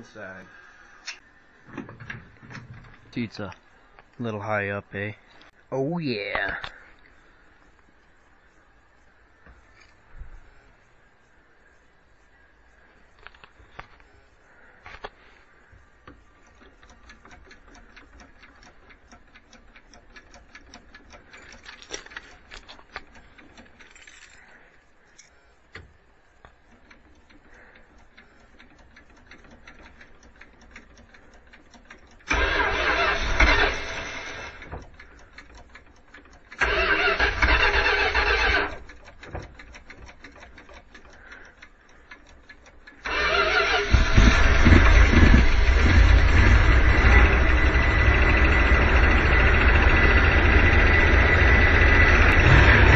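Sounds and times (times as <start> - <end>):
starter cranking van engine: 16.0 - 24.4, 26.6 - 52.9.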